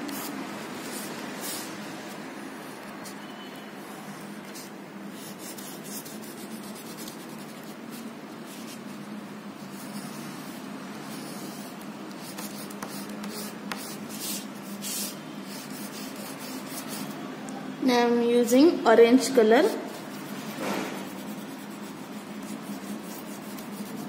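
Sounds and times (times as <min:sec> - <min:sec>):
crayon scratching on paper: 0:04.5 - 0:09.0, 0:09.7 - 0:17.2, 0:19.7 - 0:24.0.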